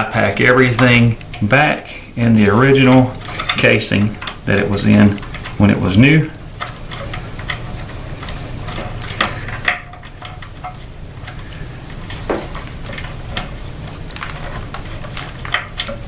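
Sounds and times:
steady low hum: 1.9 - 3.6.

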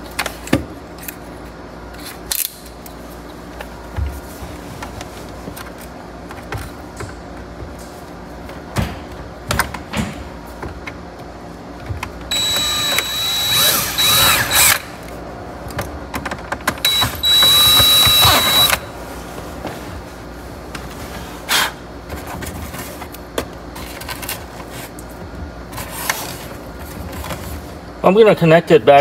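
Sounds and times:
cordless drill whining: 12.3 - 14.8, 16.9 - 18.8
clicks and knocks of handling drill: 16.9 - 18.8.

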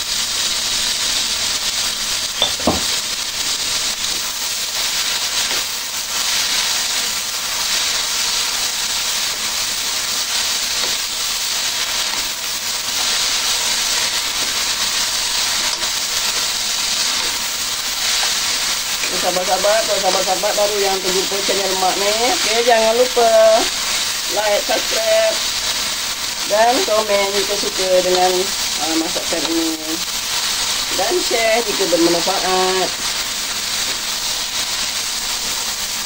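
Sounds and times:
noodles sizzling in a wok: 0.0 - 36.0.

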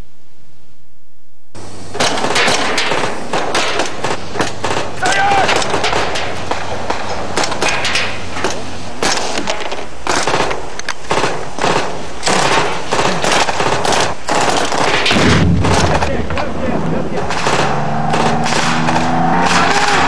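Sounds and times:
machine-gun and rifle fire: 2.0 - 8.2, 10.1 - 16.2, 17.2 - 20.0
low rumble: 15.1 - 19.6.

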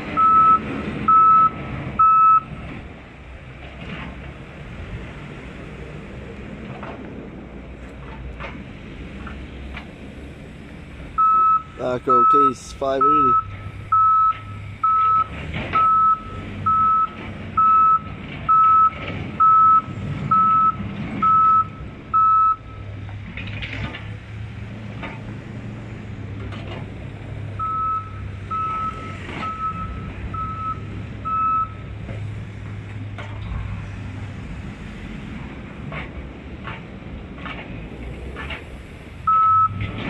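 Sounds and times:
diesel engine drone: 0.0 - 40.0
backup alarm beeping: 0.2 - 2.5, 11.2 - 22.8, 27.6 - 31.8, 39.3 - 39.8.

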